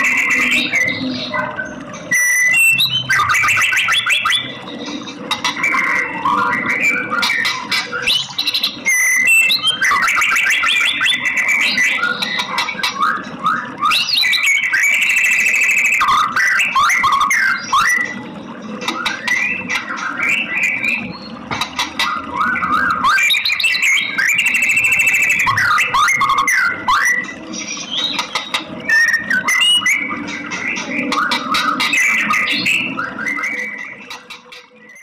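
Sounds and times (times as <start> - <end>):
bird singing whistled phrases: 0.0 - 4.5, 5.7 - 18.2, 22.4 - 28.2.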